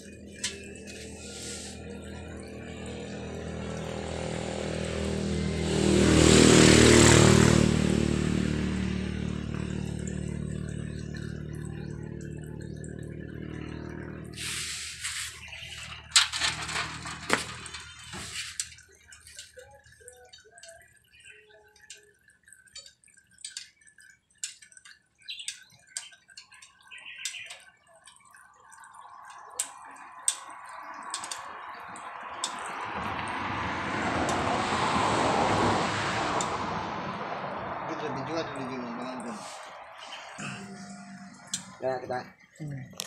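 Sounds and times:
oil stream into pan: 0:00.0 - 0:05.3, 0:08.2 - 0:36.7
oil dripping: 0:00.0 - 0:43.0
metal parts clinking into tray: 0:16.1 - 0:18.6.

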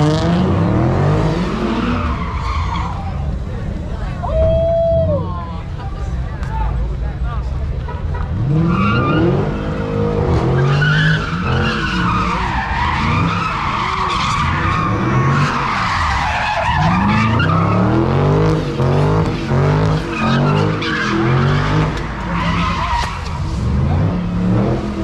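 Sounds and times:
car engine revving: 0:00.0 - 0:03.0, 0:08.2 - 0:25.0.

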